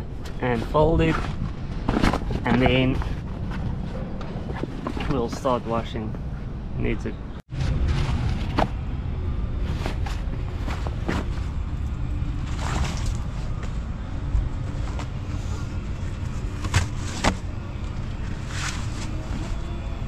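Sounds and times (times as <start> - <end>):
steady low rumble: 0.0 - 20.0
canvas rustling: 12.4 - 19.6.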